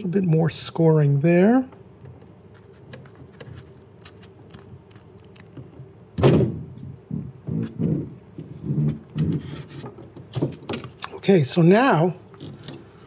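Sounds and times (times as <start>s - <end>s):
cord rubbing and creaking: 6.8s - 11.0s.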